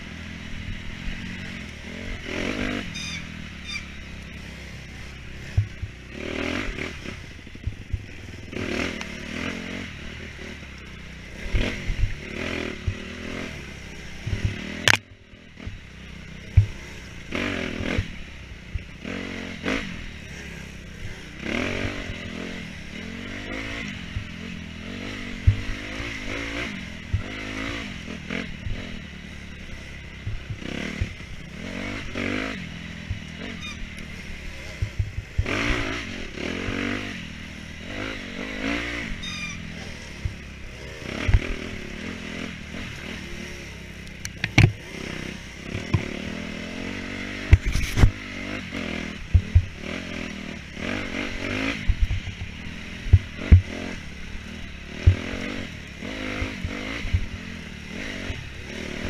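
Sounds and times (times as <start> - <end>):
dirt bike engine revving: 0.0 - 59.0
bike knocks and clatter: 44.3 - 44.8, 47.5 - 48.2.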